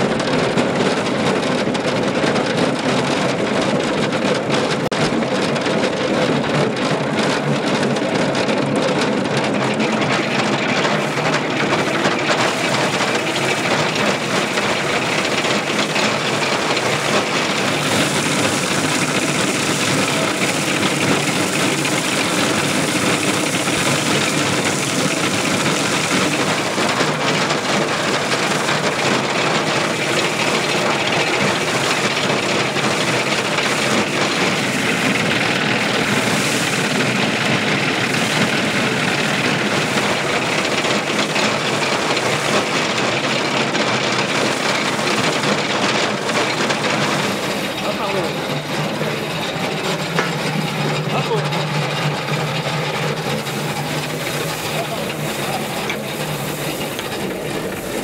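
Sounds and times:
threshing machine running: 0.0s - 58.0s.

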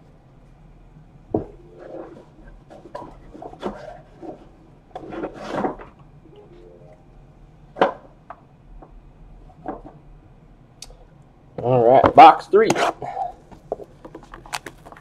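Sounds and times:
cards clicking and rustling: 13.6s - 15.0s.

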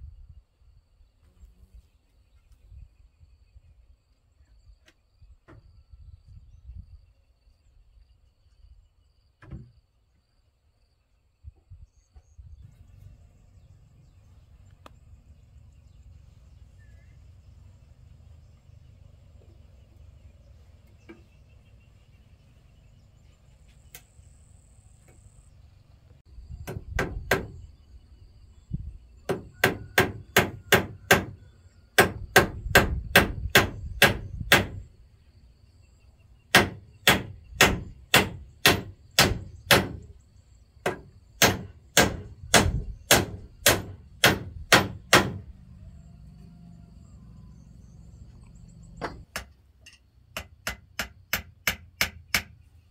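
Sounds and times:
hammer striking wood: 26.6s - 27.6s, 29.3s - 31.4s, 32.0s - 34.8s, 36.5s - 40.1s, 40.8s - 45.4s, 49.0s - 49.6s, 50.3s - 52.6s.

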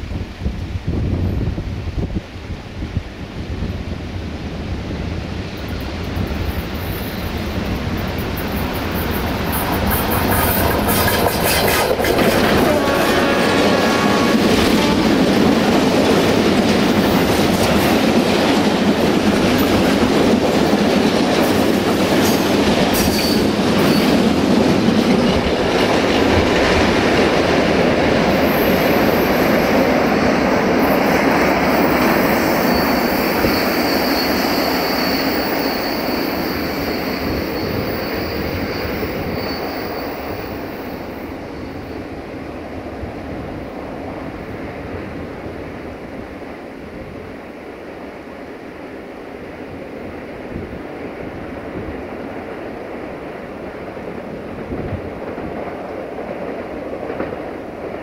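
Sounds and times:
diesel locomotive passing: 0.0s - 58.0s
wheels clattering over rail joints: 5.8s - 27.4s
high wheel squeal: 8.4s - 15.1s, 30.8s - 42.0s.

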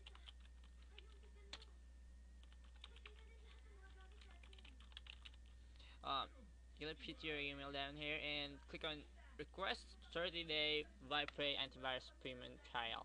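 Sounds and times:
keyboard typing: 0.0s - 1.7s, 2.4s - 5.6s
steady low hum: 0.0s - 13.0s.

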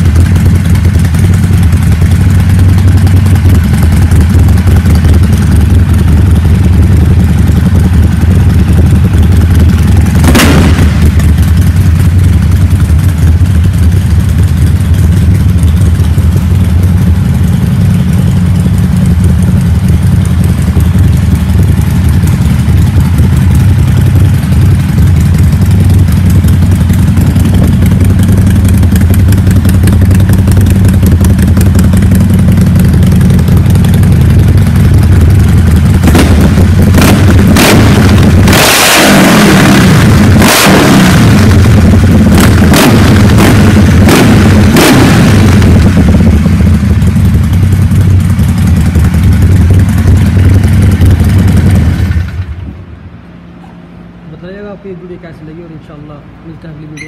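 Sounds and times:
motorcycle engine idling: 0.0s - 57.0s
sharp crack: 9.6s - 12.2s.

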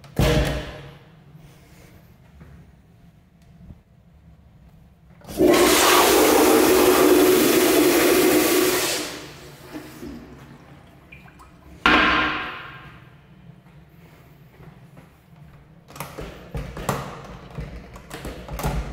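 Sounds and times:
toilet flushing water rush: 5.2s - 12.8s.

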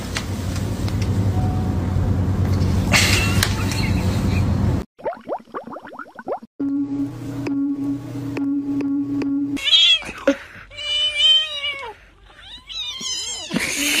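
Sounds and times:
steady hum: 6.6s - 9.6s.

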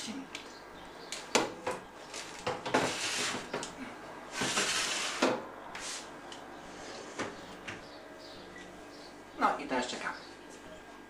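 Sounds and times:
baking sheet scraping on rack: 2.1s - 3.6s, 4.3s - 6.1s.

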